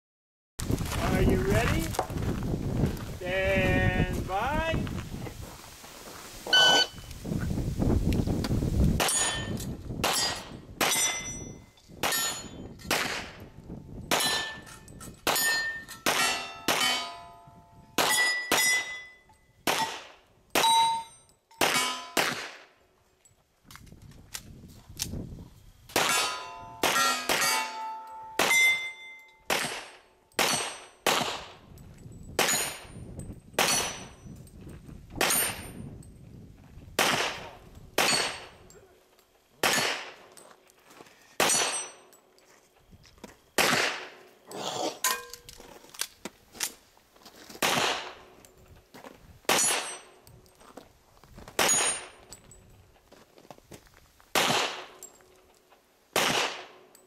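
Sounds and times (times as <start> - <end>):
steel plates ringing: 6.5 - 7.1, 9.0 - 12.8, 14.1 - 19.6, 20.6 - 22.2, 26.1 - 29.5, 45.0 - 45.5
handgun shots: 12.0 - 13.4, 19.7 - 20.8, 21.6 - 22.7, 29.5 - 31.5, 43.6 - 44.2, 47.6 - 48.2, 54.4 - 55.0, 56.2 - 56.7.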